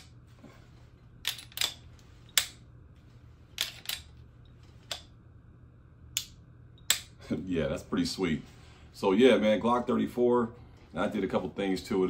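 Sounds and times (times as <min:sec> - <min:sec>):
pistol slide and trigger clicks: 0:01.2 - 0:01.8, 0:03.6 - 0:04.1.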